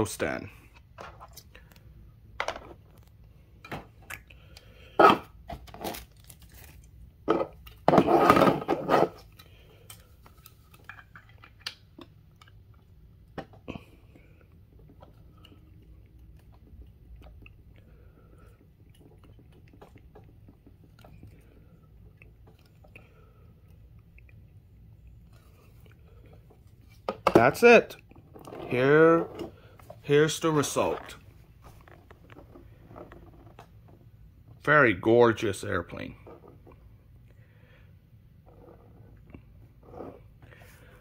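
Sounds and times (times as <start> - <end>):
plastic rustling: 5.5 - 7.0.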